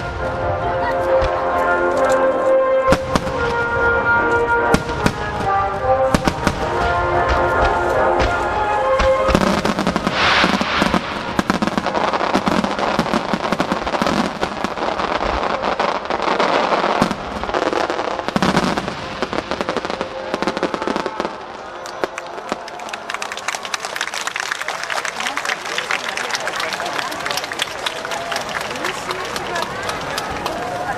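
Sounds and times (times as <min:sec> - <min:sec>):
music: 0:00.0 - 0:10.5
fireworks bursting and crackling: 0:00.0 - 0:24.2, 0:24.8 - 0:30.9.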